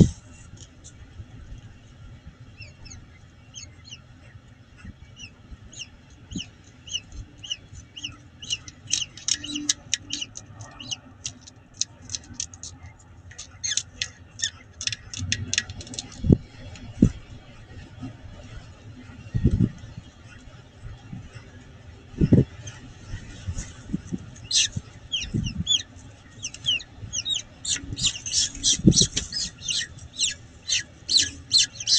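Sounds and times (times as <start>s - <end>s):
bird chick peeping: 2.5s - 16.4s, 22.2s - 31.9s.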